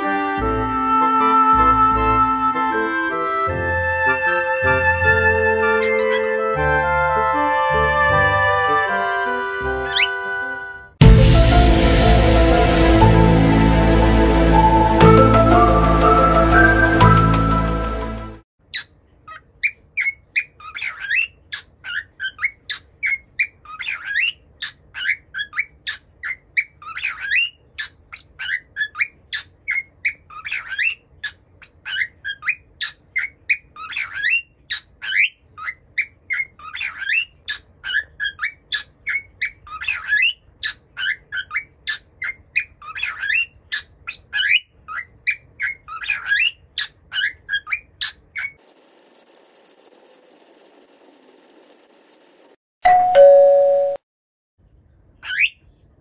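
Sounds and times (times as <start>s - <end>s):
cockatiel whistling call: 48.6s - 52.6s.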